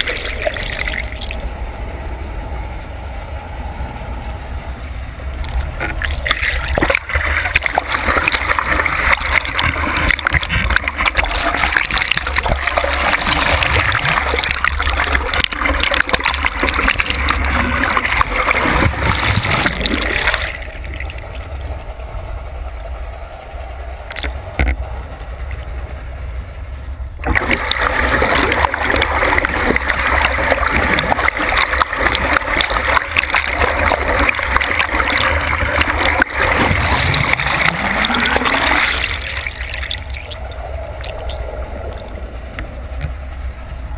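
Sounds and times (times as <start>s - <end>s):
water rushing and splashing: 0.0s - 1.5s, 5.4s - 21.4s, 27.2s - 43.2s.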